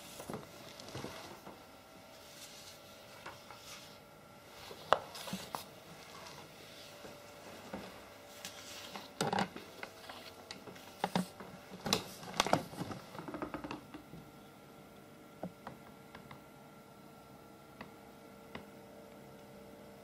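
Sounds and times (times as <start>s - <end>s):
steady faint hum: 0.0s - 20.0s
paper rustling and crackling: 4.6s - 13.0s.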